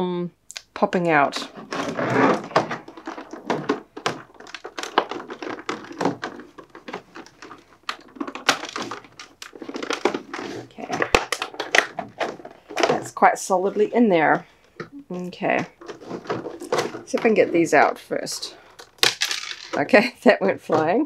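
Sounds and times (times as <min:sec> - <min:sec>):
plastic tray crackling and clicking: 0:01.5 - 0:13.2.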